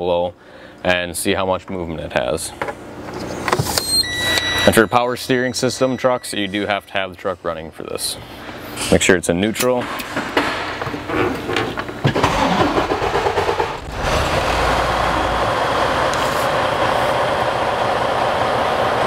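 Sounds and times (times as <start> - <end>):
diesel engine starter cranking: 12.1 - 16.3
diesel engine idling: 12.4 - 19.0.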